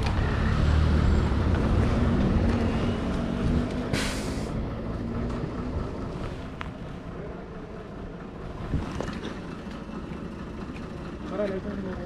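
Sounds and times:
vehicle engine idling: 0:02.2 - 0:12.0
short sharp hiss: 0:03.9 - 0:04.6.

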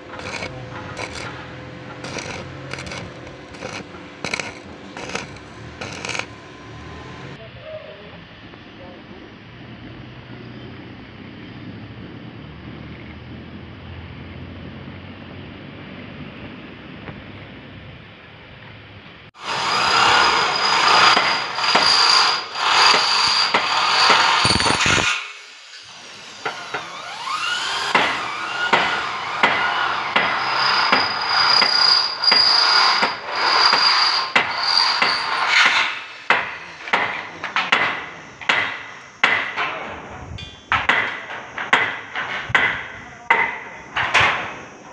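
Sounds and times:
power tool whine: 0:00.0 - 0:07.4, 0:19.4 - 0:37.0
outdoor background noise: 0:00.0 - 0:44.9.

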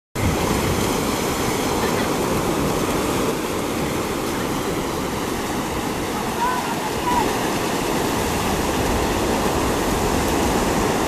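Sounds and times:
ocean surf breaking: 0:00.2 - 0:11.0.

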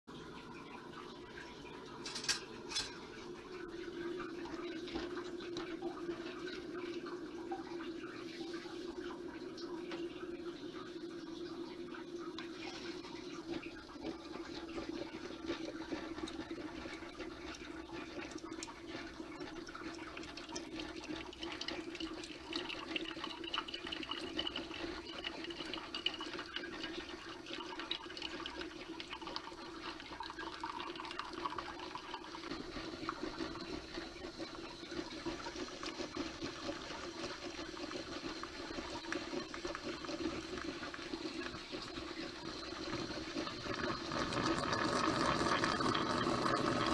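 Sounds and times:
coffee sputtering into carafe: 0:02.0 - 0:10.4, 0:12.2 - 0:46.9
espresso machine humming: 0:38.5 - 0:46.9.

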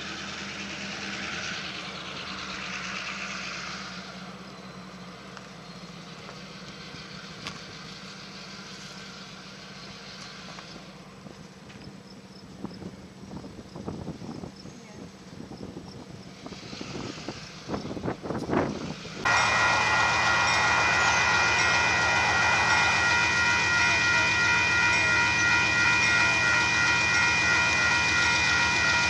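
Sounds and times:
engine hum: 0:00.0 - 0:29.0
broad rush of noise: 0:19.0 - 0:26.8.

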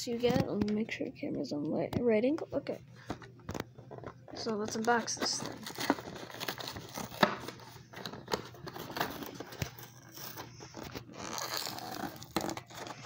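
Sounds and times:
toy packaging crinkling: 0:04.0 - 0:13.0.

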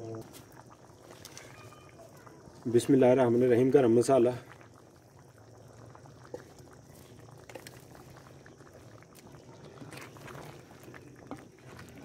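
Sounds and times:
curry bubbling and crackling: 0:00.0 - 0:12.0
wooden spoon stirring: 0:06.3 - 0:12.0.

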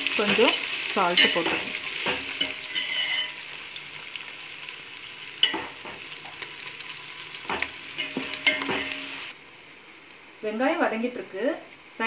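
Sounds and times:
onions sizzling in hot oil: 0:00.0 - 0:12.0
spoon scraping and knocking pot: 0:01.2 - 0:03.4, 0:07.4 - 0:09.1.

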